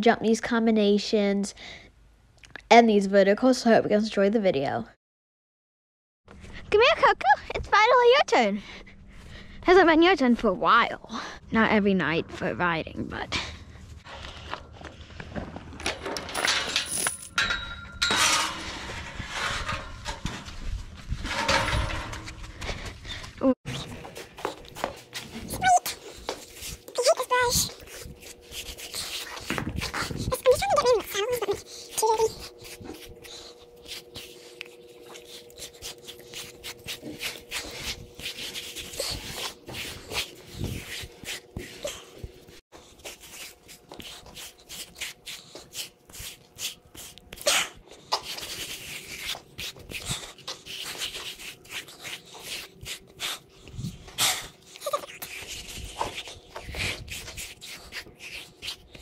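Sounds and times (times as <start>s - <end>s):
metal chain clinking: 15.8s - 18.5s
metal gate clanking and rattling: 15.8s - 20.4s, 21.2s - 22.4s
metallic ringing: 16.2s - 18.8s
brush rubbing horse's coat: 26.1s - 42.2s, 42.8s - 47.2s, 48.2s - 53.0s.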